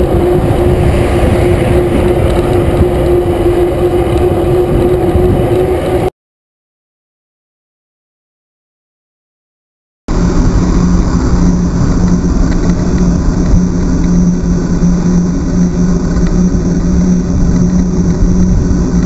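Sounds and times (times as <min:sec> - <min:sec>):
constant low hum: 0:00.0 - 0:06.1, 0:10.1 - 0:19.0
wind and road noise rushing: 0:00.0 - 0:06.1, 0:10.1 - 0:19.0.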